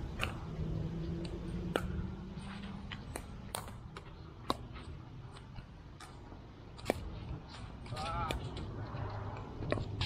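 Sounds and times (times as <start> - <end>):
paddles hitting plastic ball: 1.2 - 2.1, 2.8 - 8.7.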